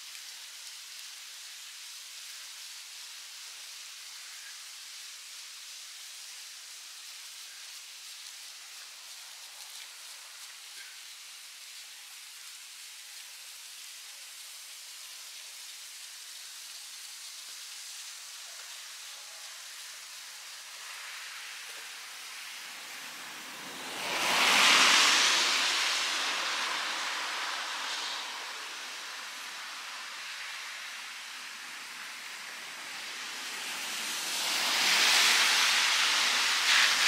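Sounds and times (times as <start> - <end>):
steady hiss: 0.0 - 37.0
vehicle driving past on snow: 22.6 - 30.1.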